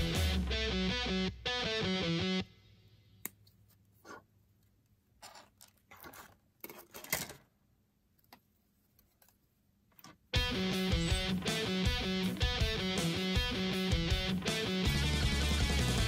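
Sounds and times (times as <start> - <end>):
guitar music: 0.0 - 2.9, 10.3 - 16.0.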